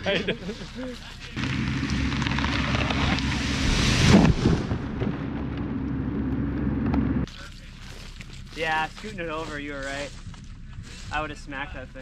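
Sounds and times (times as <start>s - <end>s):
engine running steadily: 0.0s - 3.7s, 5.2s - 12.0s
branches and leaves breaking: 0.6s - 5.9s
tree crashing to the ground: 1.4s - 5.9s.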